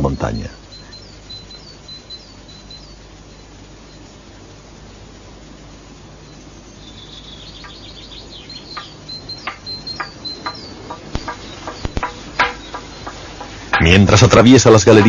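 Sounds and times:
high chirping: 0:00.0 - 0:05.2, 0:05.8 - 0:15.0
mallet knocking wooden plank: 0:08.8 - 0:14.0.

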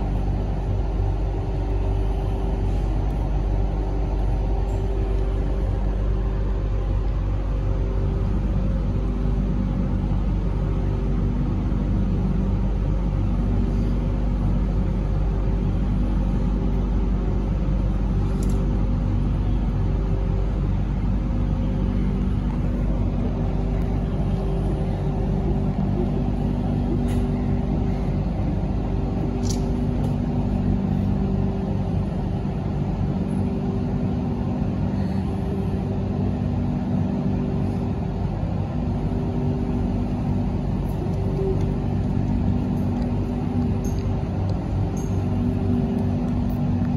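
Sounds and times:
low equipment hum: 0:00.0 - 0:46.9
train cabin rumble: 0:00.0 - 0:46.9.

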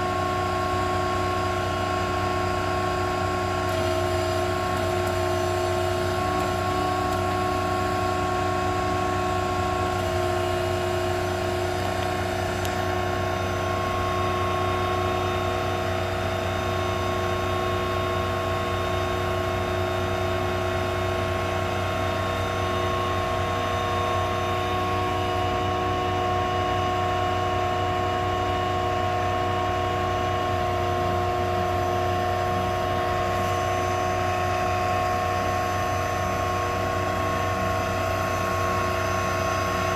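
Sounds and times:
crane mechanical whine: 0:00.0 - 0:39.9.

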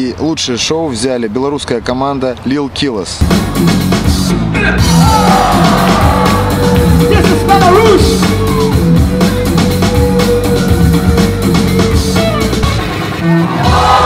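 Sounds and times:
loud music with steady beat: 0:03.2 - 0:14.0.

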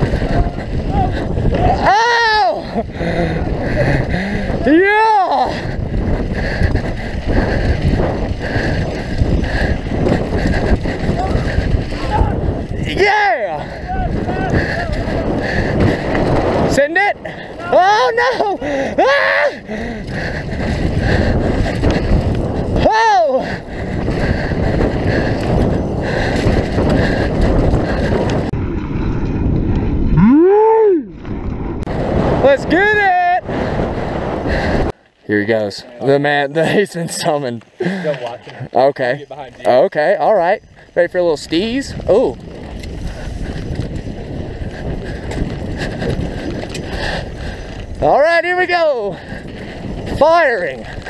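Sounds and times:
tyres rumbling on dirt: 0:00.0 - 0:39.8
bike rattling: 0:00.0 - 0:51.0
wind buffeting microphone: 0:00.0 - 0:51.0
person whooping: 0:00.4 - 0:02.8, 0:17.6 - 0:19.7, 0:22.8 - 0:23.4, 0:30.2 - 0:31.2.

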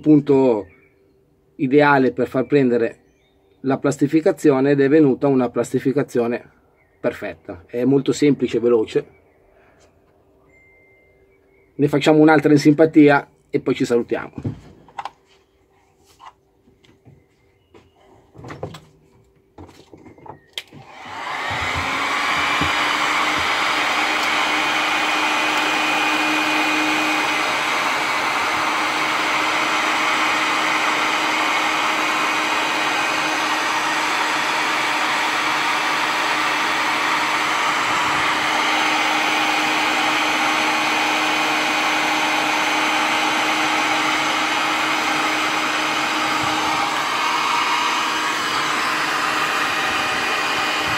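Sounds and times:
heat gun running: 0:20.6 - 0:50.9.

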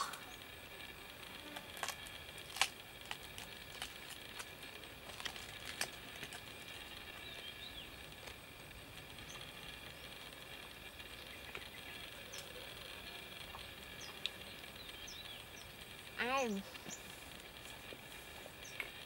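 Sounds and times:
high hum: 0:00.0 - 0:19.0.

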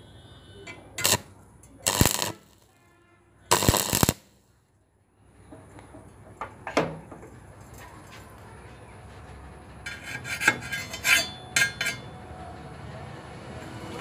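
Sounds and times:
welding arc crackling: 0:01.0 - 0:02.7, 0:03.5 - 0:04.4.

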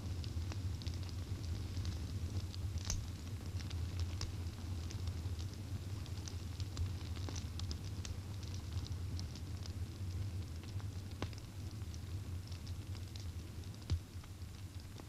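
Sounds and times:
small fire crackling: 0:00.0 - 0:15.0.

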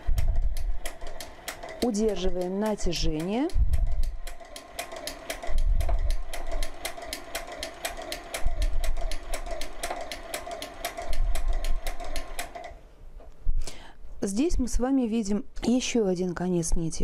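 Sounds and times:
sewing machine rapid clicking: 0:00.0 - 0:12.8
machine hum: 0:00.0 - 0:13.0.

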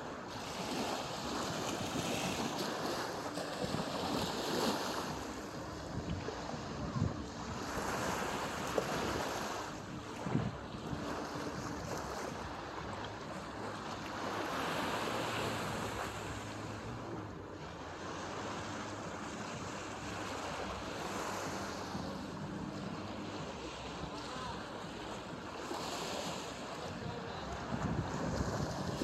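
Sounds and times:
small waves washing onto sand: 0:00.0 - 0:29.0
wind on microphone: 0:00.0 - 0:29.0.

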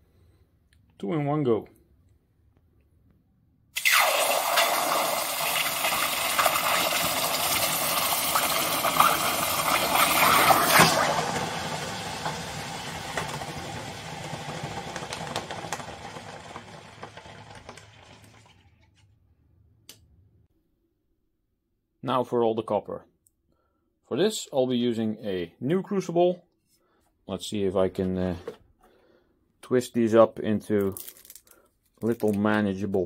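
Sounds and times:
hot metal hissing in water: 0:03.8 - 0:13.6.

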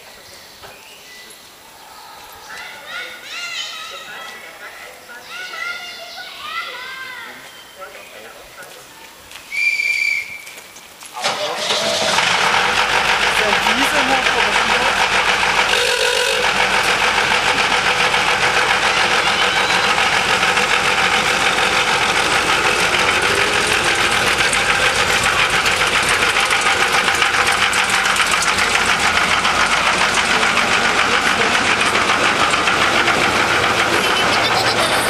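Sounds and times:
carriage wheels rolling on rails: 0:10.4 - 0:35.0
locomotive mechanical knocking: 0:11.2 - 0:35.0.

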